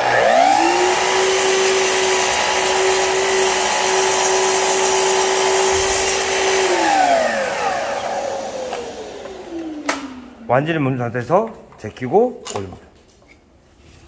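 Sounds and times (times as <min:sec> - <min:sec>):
saw blade winding down: 0:00.0 - 0:10.2
mitre saw whining: 0:00.0 - 0:10.5.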